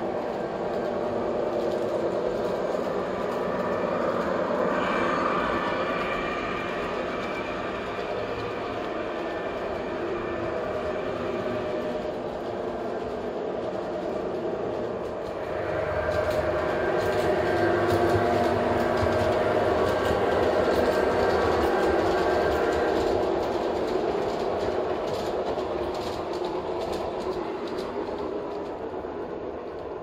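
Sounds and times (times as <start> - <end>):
wheels clicking over rail joints: 6.8 - 30.0.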